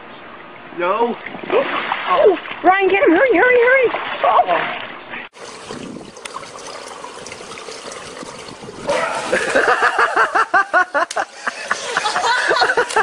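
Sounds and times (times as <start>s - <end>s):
pool water lapping and trickling: 0.3s - 13.0s
water splashing: 3.8s - 13.0s.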